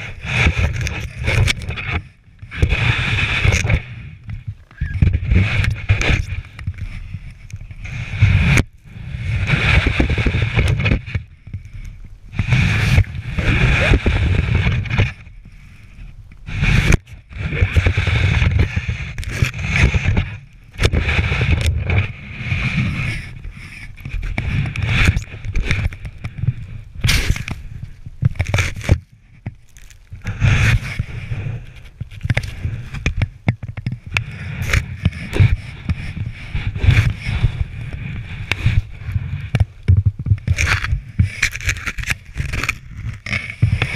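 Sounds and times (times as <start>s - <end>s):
snow shovel scooping snow: 12.4s - 15.0s.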